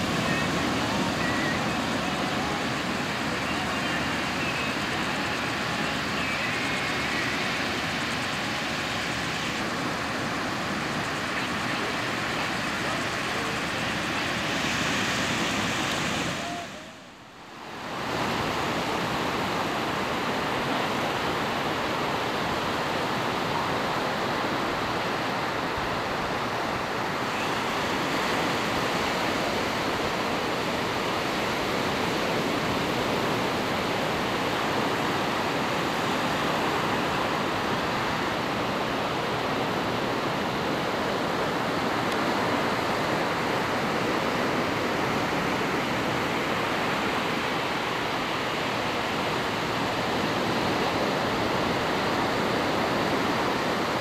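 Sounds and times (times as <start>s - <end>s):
ocean surf breaking: 0.0s - 17.2s.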